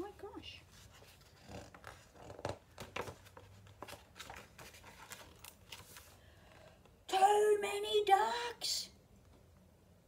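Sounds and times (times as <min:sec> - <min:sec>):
woman's voice: 0:00.0 - 0:00.7, 0:07.1 - 0:09.0
paper pages turning: 0:00.7 - 0:06.2.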